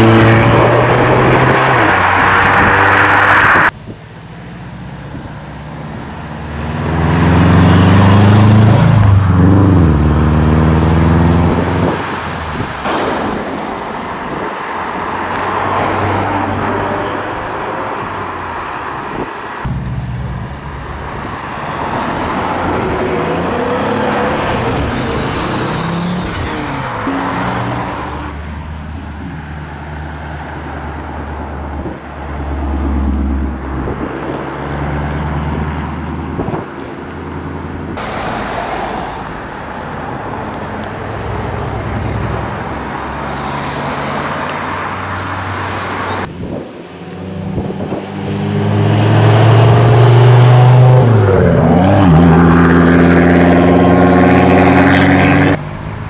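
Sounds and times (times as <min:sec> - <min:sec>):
sports cars accelerating: 0:00.0 - 0:03.7, 0:05.4 - 0:12.7, 0:37.8 - 0:56.0.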